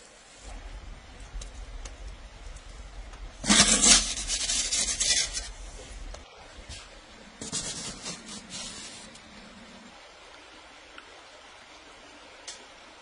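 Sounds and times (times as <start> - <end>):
metal peel scraping wooden table: 3.4 - 5.5
metal peel scraping brick floor: 3.4 - 6.1, 7.4 - 9.2.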